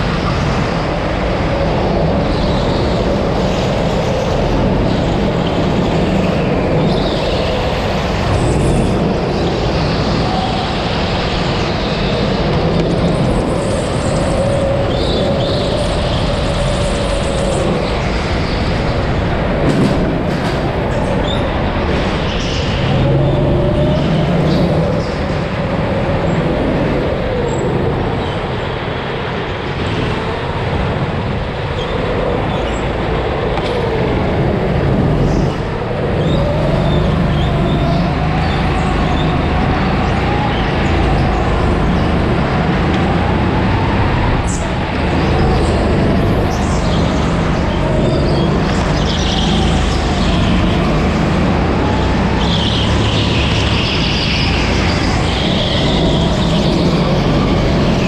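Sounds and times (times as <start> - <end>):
steady rush of noise: 0.0 - 58.0
go-kart engine revving: 33.5 - 58.0.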